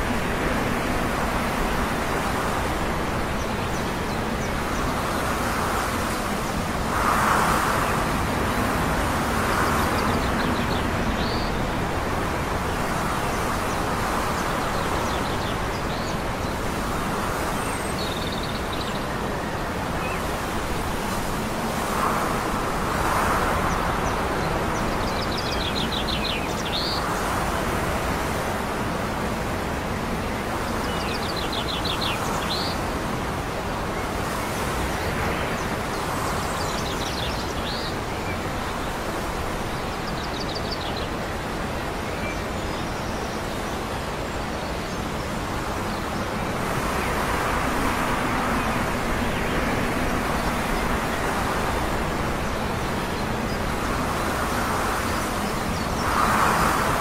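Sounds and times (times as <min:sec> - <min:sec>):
wind: 0:00.0 - 0:57.0
distant traffic: 0:44.0 - 0:57.0.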